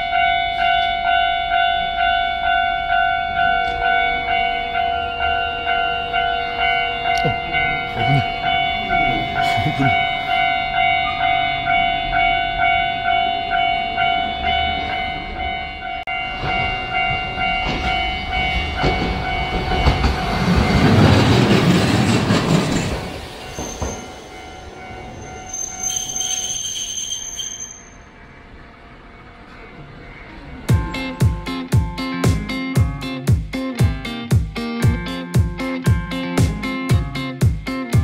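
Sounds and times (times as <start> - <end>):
level crossing bell ringing: 0.0 - 21.0
tram wheels running: 0.0 - 33.3.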